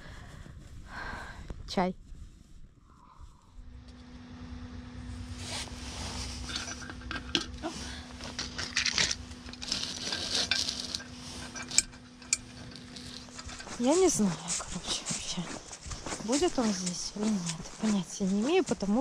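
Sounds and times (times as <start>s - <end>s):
low steady hum: 0.0s - 19.0s
metal candle lantern clinking: 6.4s - 15.3s.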